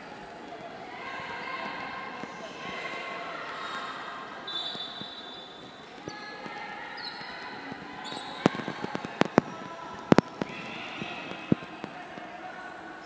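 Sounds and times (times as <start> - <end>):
murmur of voices: 0.0 - 13.0
rubber soles squeaking on court: 4.4 - 9.6.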